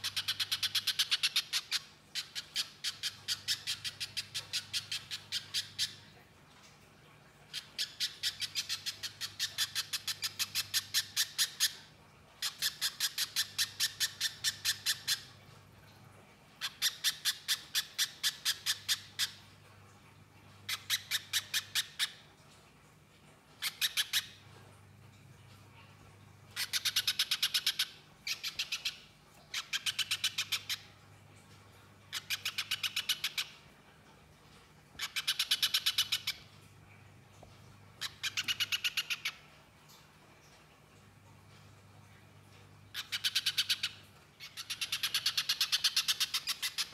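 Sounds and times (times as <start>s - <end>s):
bird chattering song: 0.0s - 6.1s, 7.5s - 11.8s, 12.4s - 15.3s, 16.6s - 19.4s, 20.7s - 22.2s, 23.6s - 24.4s, 26.6s - 30.9s, 32.1s - 33.6s, 35.0s - 36.5s, 38.0s - 39.5s, 42.9s - 46.9s.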